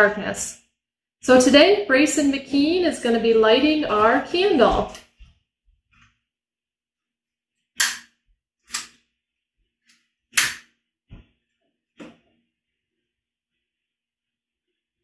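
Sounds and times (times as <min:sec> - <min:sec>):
lighter spark igniter snaps: 0:07.8 - 0:08.1.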